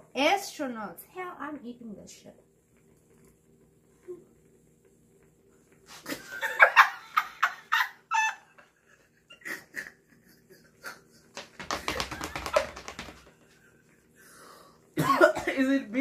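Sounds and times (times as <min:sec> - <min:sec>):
woman squealing with laughter: 0:06.2 - 0:10.0
coughing: 0:15.0 - 0:15.8.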